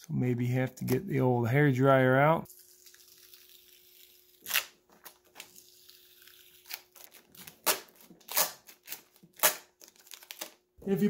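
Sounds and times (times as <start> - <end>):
sticker peeling off with crackling rips: 2.5 - 10.6.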